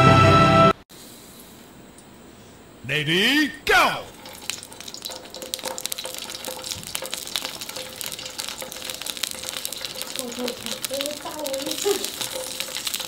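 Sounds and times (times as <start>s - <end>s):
eggplant sizzling on grill: 4.1s - 13.0s.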